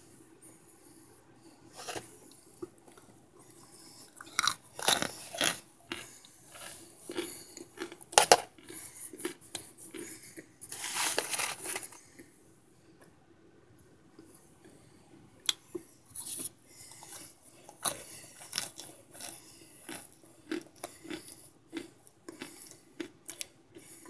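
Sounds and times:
crisp crunching bites: 4.2 - 10.0.

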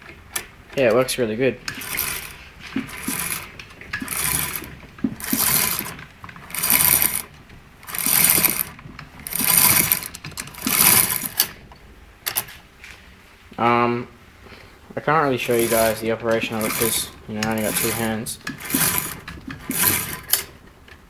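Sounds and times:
clutch drum whirring: 0.0 - 12.6, 15.1 - 21.0
chain and brake rattling: 0.8 - 11.7, 15.3 - 20.6.

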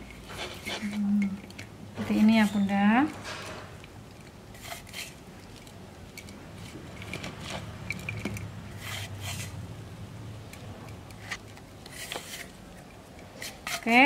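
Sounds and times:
seasoning sprinkling rustles: 3.8 - 7.9.

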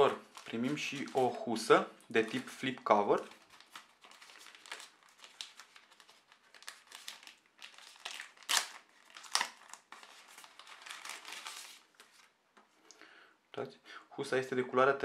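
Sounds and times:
plastic wrapping crinkling: 0.0 - 12.4
sharp plastic crackles: 2.1 - 12.3.

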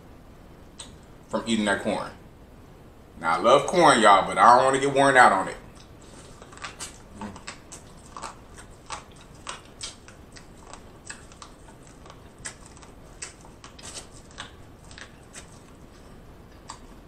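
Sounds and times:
crunchy chewing of corn: 5.7 - 17.0.

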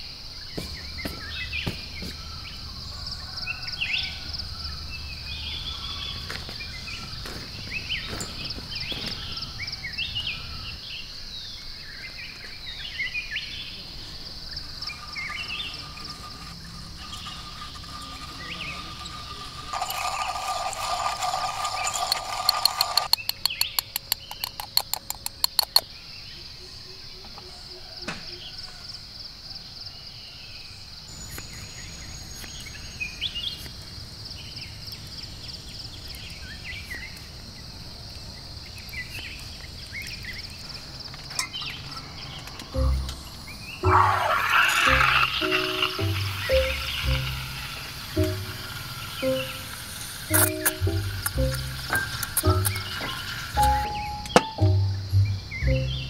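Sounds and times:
insects trilling: 0.0 - 56.0
bird chirps: 0.4 - 20.0, 38.8 - 56.0
loud clicks: 22.4 - 25.9
loud humming: 42.8 - 56.0.

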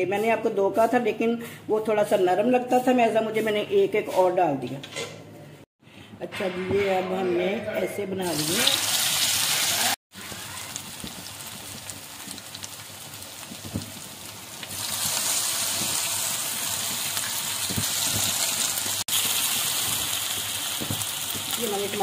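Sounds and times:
food frying in hot oil: 8.3 - 22.0.

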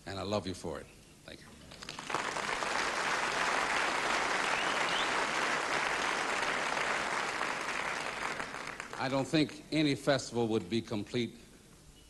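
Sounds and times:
audience applauding: 1.7 - 9.4
crowd whistle: 4.4 - 5.3.

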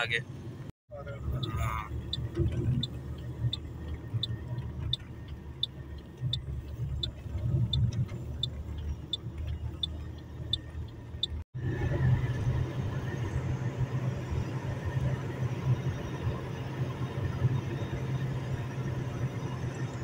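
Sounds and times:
car road and engine rumble: 0.0 - 20.0
turn signal ticking: 0.9 - 11.5.

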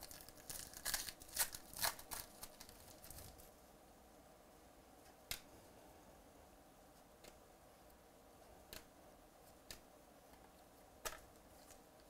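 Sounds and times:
wrapper tearing and crinkling: 0.0 - 3.4.

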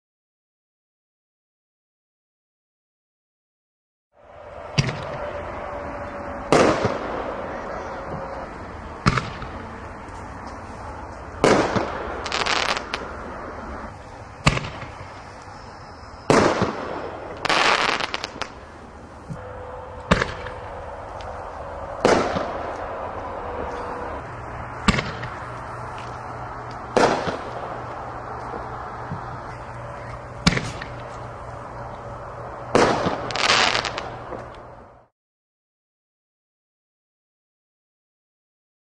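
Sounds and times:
firework shell bangs: 6.5 - 7.4, 11.4 - 13.1, 14.4 - 15.0, 19.3 - 20.8, 22.0 - 22.8, 24.8 - 25.4, 26.8 - 27.8, 30.4 - 31.0, 32.7 - 34.1.

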